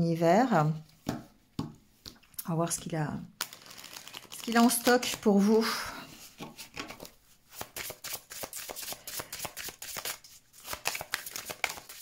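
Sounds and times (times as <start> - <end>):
cards being shuffled: 6.3 - 12.0.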